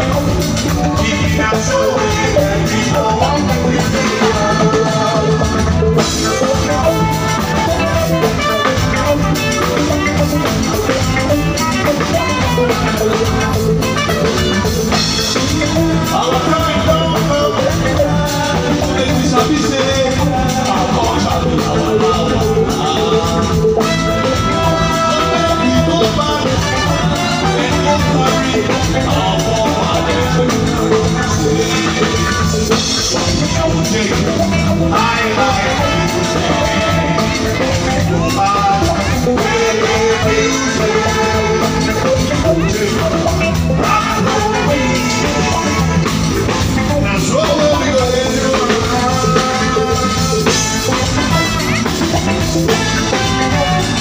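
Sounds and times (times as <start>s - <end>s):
backing vocalist singing: 0.0s - 54.0s
man singing lead: 0.0s - 54.0s
reggae band playing: 0.0s - 54.0s.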